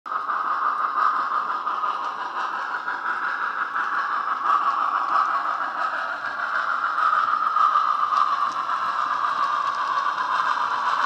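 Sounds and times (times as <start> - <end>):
steam hiss from small speaker: 0.2 - 11.0.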